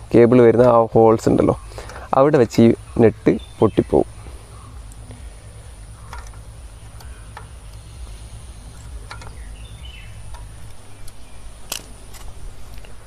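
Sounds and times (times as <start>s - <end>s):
low background rumble: 0.0s - 13.0s
high-pitched insect drone: 1.4s - 11.8s
small metal clicks: 6.0s - 7.9s, 8.7s - 9.5s, 10.2s - 13.0s.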